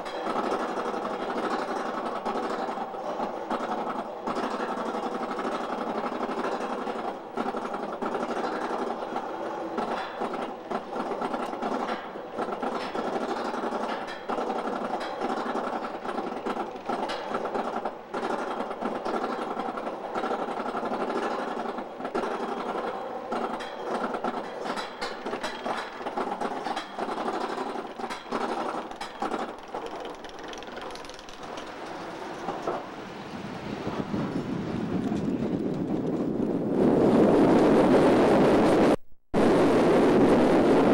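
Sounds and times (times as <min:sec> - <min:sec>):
rapid repeated clicking: 0:00.0 - 0:32.0
roller coaster lift chain clatter: 0:00.0 - 0:33.0
rush of wind: 0:31.2 - 0:40.9.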